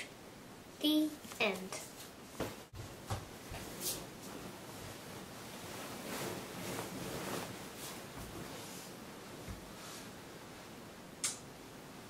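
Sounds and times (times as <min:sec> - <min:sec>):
bedding rustling: 0:01.4 - 0:10.6
soft bumps: 0:02.4 - 0:04.4.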